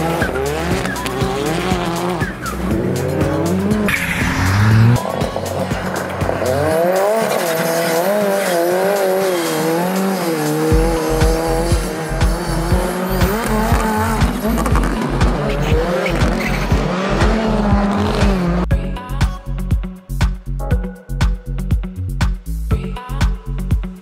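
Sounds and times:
music with steady beat: 0:00.0 - 0:07.6, 0:08.9 - 0:24.0
rally car engine revving: 0:00.0 - 0:18.7.

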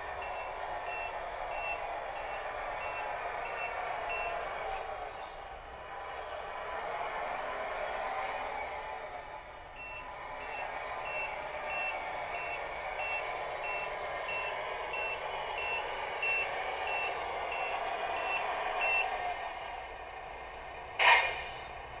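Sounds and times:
reversing alarm beeping: 0:00.1 - 0:05.0, 0:09.8 - 0:19.2
loud burst of noise: 0:20.9 - 0:21.9.

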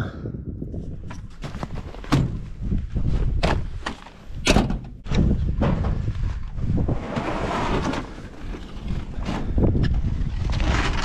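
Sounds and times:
rustling scrape: 0:06.0 - 0:11.0.

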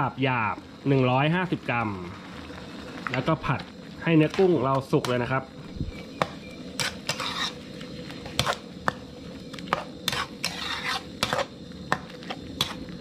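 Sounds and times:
soft sizzle: 0:00.0 - 0:13.0
metal spatula scraping wok: 0:04.2 - 0:13.0.

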